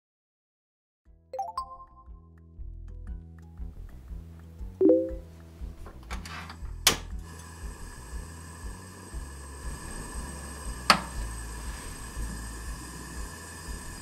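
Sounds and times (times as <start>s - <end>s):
gas burner flame hissing: 6.2s - 14.0s
gas stove igniter click: 10.9s - 11.2s.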